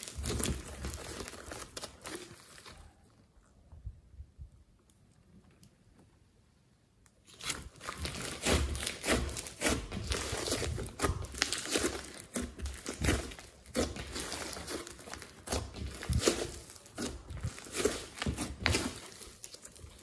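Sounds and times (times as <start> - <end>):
slime crackling and squishing: 0.0 - 3.0, 7.2 - 20.0.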